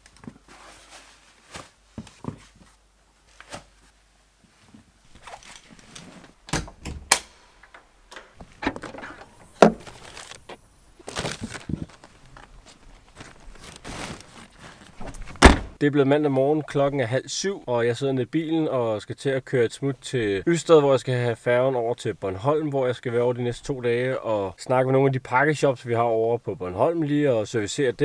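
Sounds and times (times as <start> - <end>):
fabric bag rustling: 5.1 - 6.4, 8.4 - 15.4
footsteps: 7.7 - 15.4
knocks and thunks: 8.4 - 10.0, 15.0 - 15.8.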